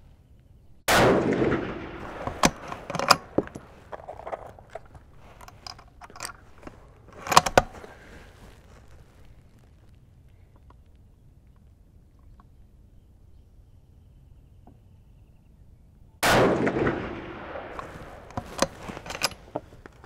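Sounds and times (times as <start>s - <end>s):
rifle shot with echo: 0.9s - 3.8s, 16.2s - 19.4s
rifle bolt clicks and clacks: 2.0s - 8.0s, 17.7s - 20.0s.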